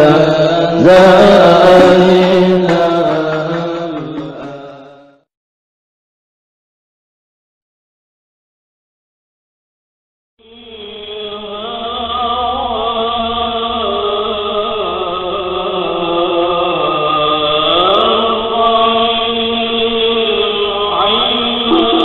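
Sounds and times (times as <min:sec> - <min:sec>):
devotional vocal chanting: 0:00.0 - 0:05.3, 0:10.4 - 0:22.0
low steady drone: 0:21.6 - 0:22.0.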